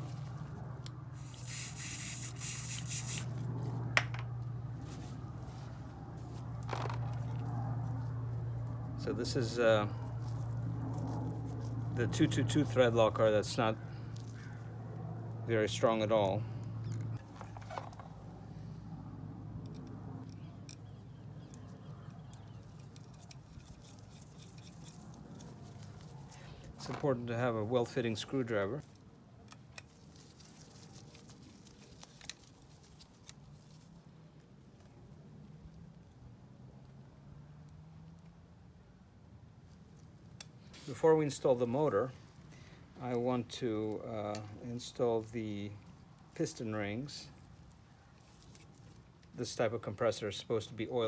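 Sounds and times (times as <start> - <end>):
aerosol spray hiss: 1.2 - 3.3
small clicks and rustling: 28.8 - 35.1.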